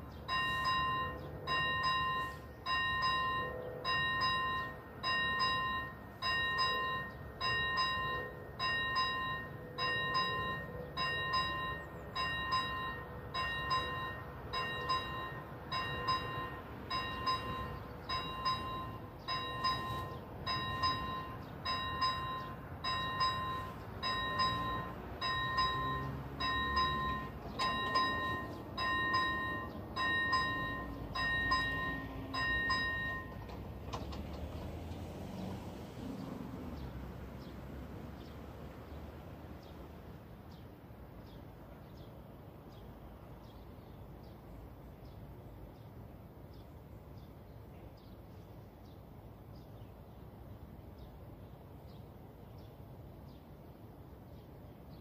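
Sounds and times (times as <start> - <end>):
level crossing warning bell ringing: 0.0 - 34.2.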